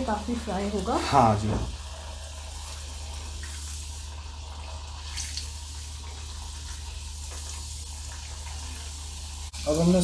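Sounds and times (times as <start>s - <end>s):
potato sizzling in hot oil: 0.0s - 10.0s.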